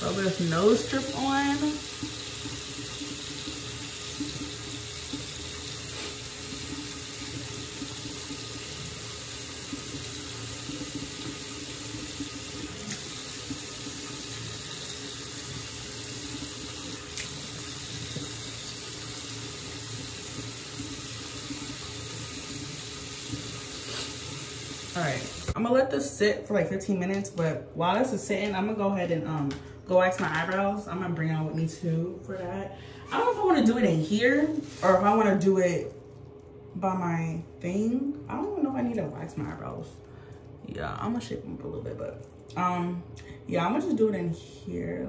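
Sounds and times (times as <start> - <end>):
water running from sink tap: 0.0 - 26.2, 33.1 - 37.0, 38.0 - 42.7.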